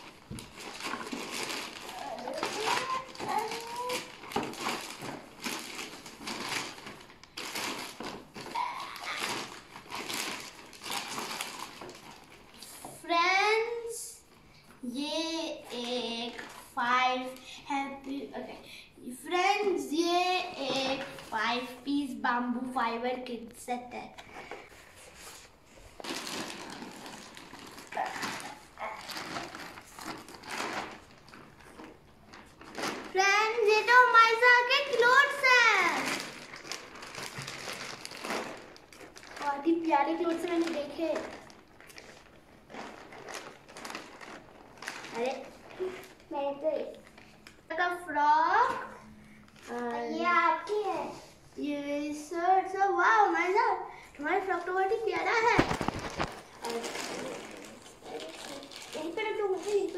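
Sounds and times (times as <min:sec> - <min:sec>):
plastic bag crinkling: 0:00.0 - 0:12.9, 0:24.4 - 0:47.8, 0:49.0 - 0:51.2, 0:54.2 - 0:59.9
child's voice: 0:01.7 - 0:04.2, 0:08.4 - 0:09.5, 0:12.6 - 0:24.2, 0:33.1 - 0:36.4, 0:39.4 - 0:41.4, 0:45.1 - 0:47.1, 0:47.7 - 0:55.9, 0:56.6 - 0:59.9.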